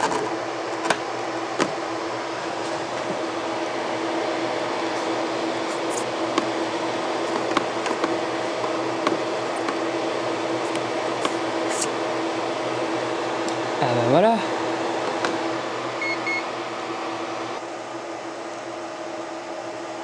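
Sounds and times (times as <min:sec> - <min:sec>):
projector fan: 0:00.0 - 0:20.0
server cooling fans: 0:00.0 - 0:20.0.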